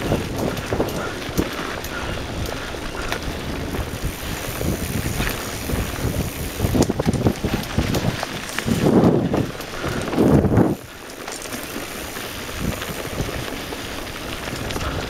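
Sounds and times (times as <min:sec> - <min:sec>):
wind buffeting microphone: 0:00.0 - 0:11.1, 0:11.8 - 0:15.0
bike knocks and rattles: 0:00.0 - 0:15.0
bike tyres rolling on dirt: 0:00.0 - 0:15.0.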